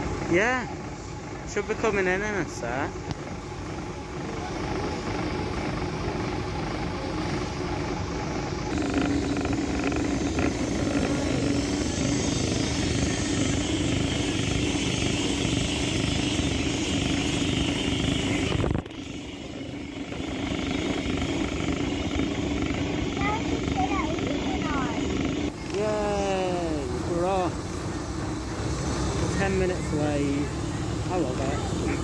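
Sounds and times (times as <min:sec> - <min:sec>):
steam locomotive rumbling: 0:00.0 - 0:32.0
steam hissing: 0:07.1 - 0:32.0.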